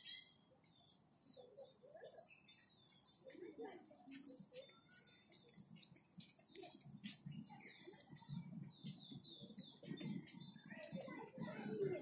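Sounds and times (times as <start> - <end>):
small birds chirping: 0.0 - 12.0
low indistinct murmur: 1.1 - 12.0.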